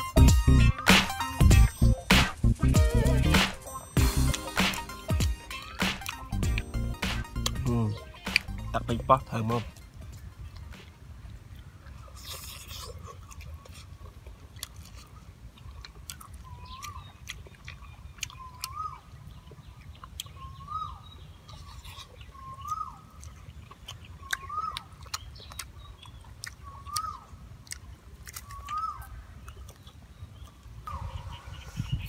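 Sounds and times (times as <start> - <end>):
bird call rising and falling: 0.0 - 10.0
wet chewing and lip-smacking: 0.0 - 31.2.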